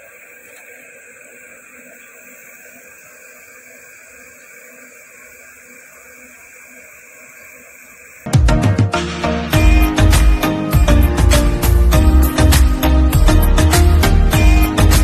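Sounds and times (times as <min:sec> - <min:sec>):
loud music with strong beat: 0:08.3 - 0:15.0.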